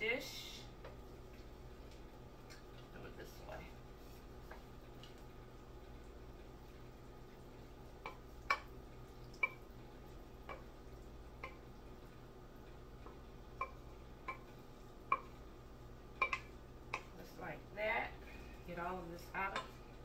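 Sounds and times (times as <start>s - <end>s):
wooden spoon clinking metal bowl: 16.2s - 17.1s.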